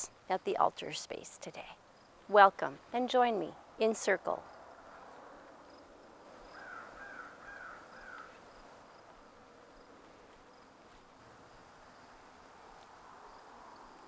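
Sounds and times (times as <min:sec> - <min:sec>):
faint insect buzzing: 0:04.4 - 0:14.0
bird calling: 0:06.4 - 0:08.7.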